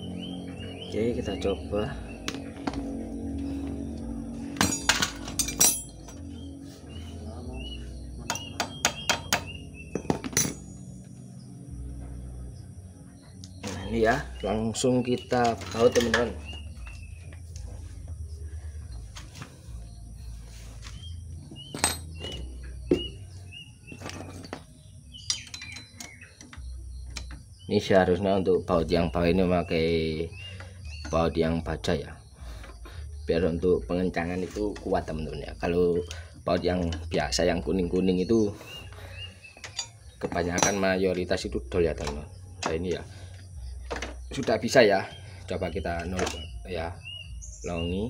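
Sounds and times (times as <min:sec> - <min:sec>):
low steady rumble: 0:00.0 - 0:08.3
metallic clinks and taps: 0:04.6 - 0:06.3, 0:08.2 - 0:11.2, 0:21.7 - 0:23.1, 0:24.0 - 0:27.4, 0:39.6 - 0:41.0
small bird chirping: 0:05.9 - 0:48.0.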